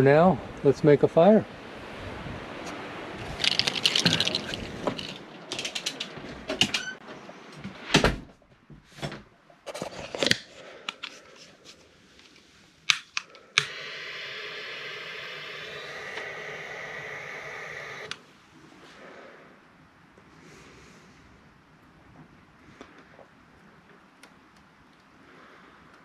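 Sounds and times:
knocks clicks and rattles: 3.4 - 7.0
steady gas hiss: 13.4 - 18.2.

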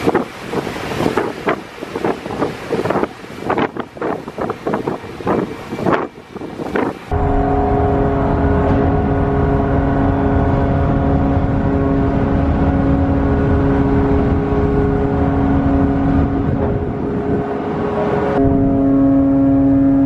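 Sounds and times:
winch machinery humming: 7.1 - 17.2.

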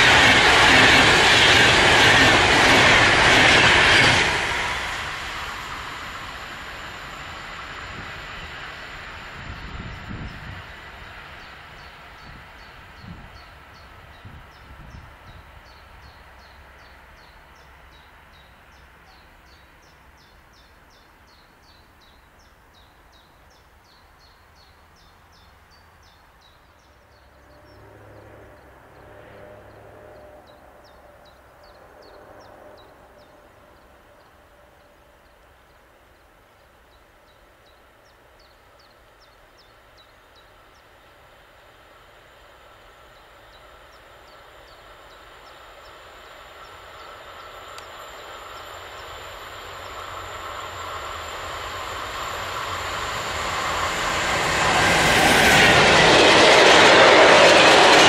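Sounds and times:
distant train rumble: 0.0 - 58.0.

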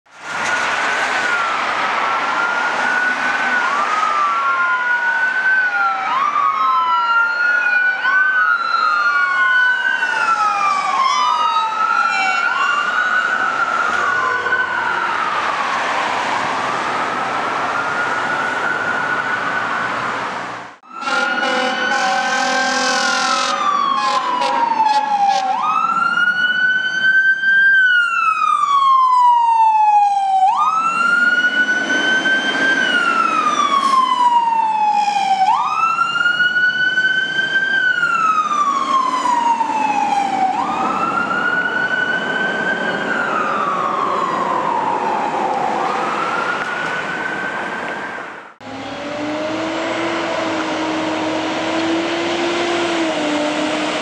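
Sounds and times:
fire engine siren wailing: 0.2 - 54.0
horn chord: 21.0 - 24.5.

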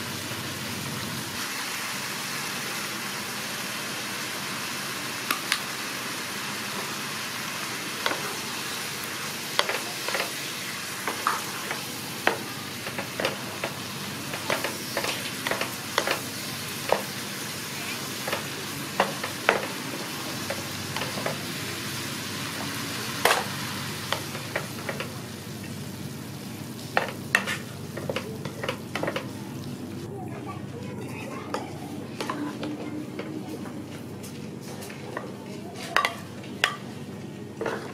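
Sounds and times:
meat and vegetables sizzling in pan: 0.0 - 29.9
spatula tapping and scraping pan: 8.0 - 8.3, 9.6 - 10.4, 11.0 - 17.2, 18.2 - 21.4, 24.1 - 25.2, 27.0 - 29.3, 35.9 - 36.8.

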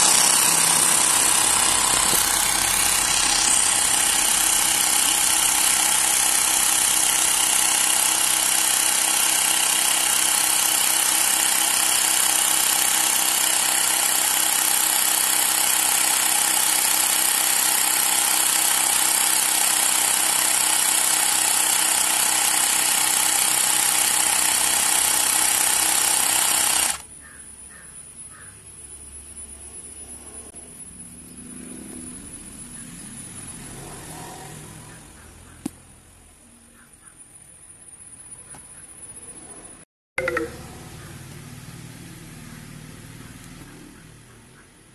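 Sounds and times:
electric air compressor running: 0.0 - 27.1.

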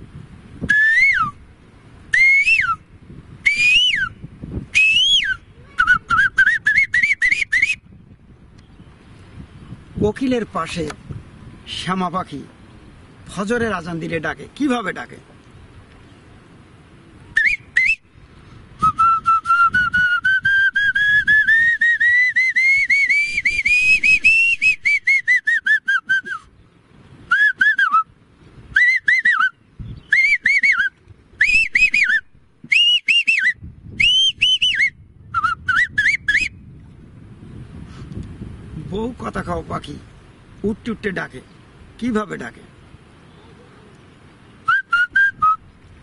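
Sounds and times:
man whistling birdsong: 0.7 - 1.4, 2.1 - 8.0, 17.4 - 18.1, 18.8 - 26.6, 27.3 - 36.6, 44.6 - 45.8.

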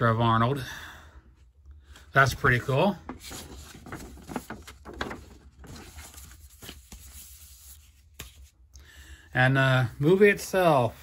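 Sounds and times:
paper poster rustling: 2.2 - 8.7.

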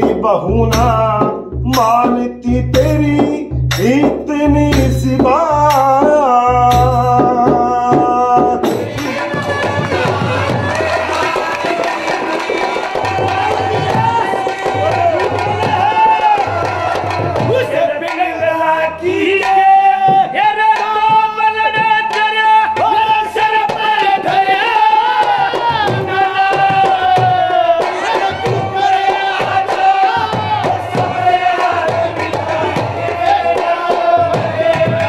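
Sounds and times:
hand drum beating: 0.0 - 18.3.

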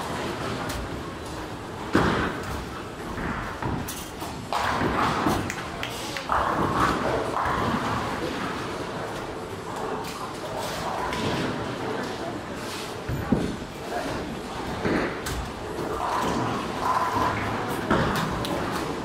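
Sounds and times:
voices in large hall: 4.9 - 19.0.

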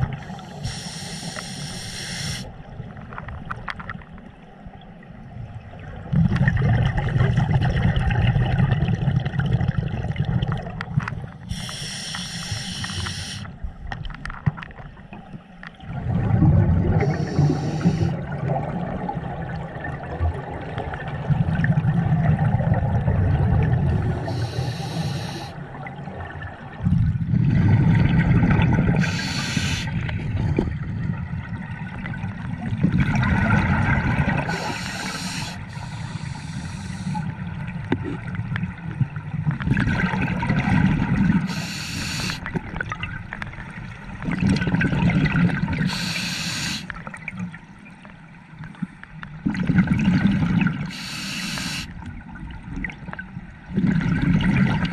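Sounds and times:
regulator inhalation hiss: 0.3 - 2.5, 11.5 - 13.5, 17.0 - 18.2, 24.3 - 25.6, 29.0 - 30.0, 34.5 - 37.2, 41.5 - 42.4, 45.9 - 46.9, 50.9 - 51.9
regulator exhale bubbling: 16.0 - 19.0, 21.4 - 25.7, 26.8 - 30.2, 33.0 - 37.4, 39.7 - 42.6, 44.3 - 47.0, 49.4 - 52.0.

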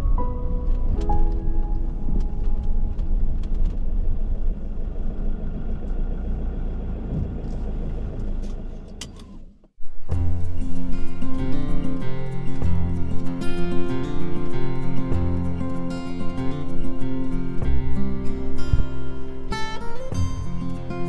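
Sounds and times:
music: 0.0 - 3.2, 9.8 - 21.0
vehicle engine rumble: 0.0 - 21.0.

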